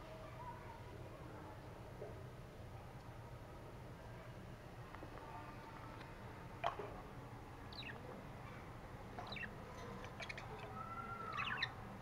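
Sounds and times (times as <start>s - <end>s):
budgerigars chirping: 7.7s - 8.0s, 9.2s - 11.8s.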